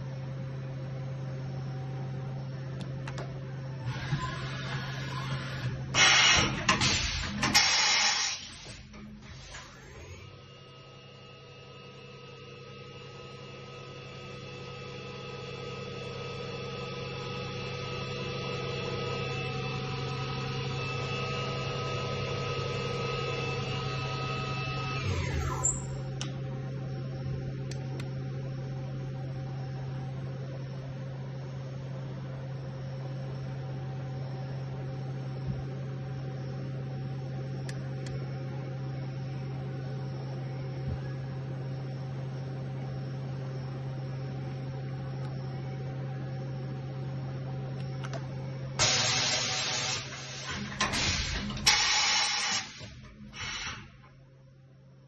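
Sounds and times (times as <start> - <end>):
machine electrical hum: 0.0 - 55.0
loud air hiss: 6.0 - 8.7, 48.8 - 53.8.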